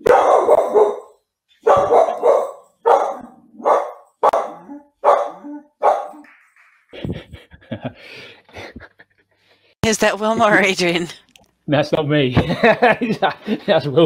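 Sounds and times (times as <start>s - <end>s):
dog barking: 0.0s - 6.2s.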